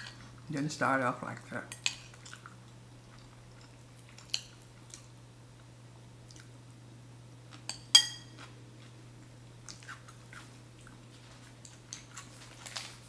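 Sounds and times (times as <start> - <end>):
steady low hum: 0.0 - 13.0
fork clinking against ceramic bowl: 7.7 - 8.4.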